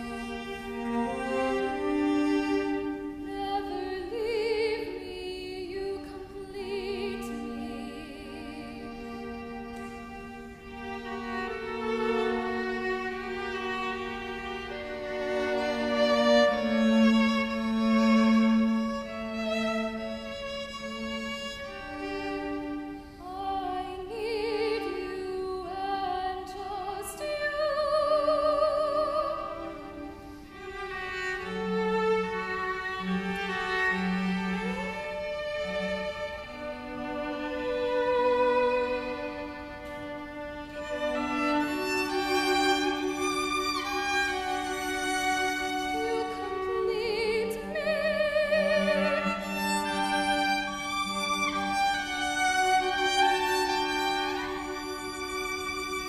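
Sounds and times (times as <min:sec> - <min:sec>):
string instruments: 0:00.0 - 0:56.0
woman singing with vibrato: 0:03.2 - 0:09.3, 0:23.2 - 0:29.9, 0:46.0 - 0:50.2.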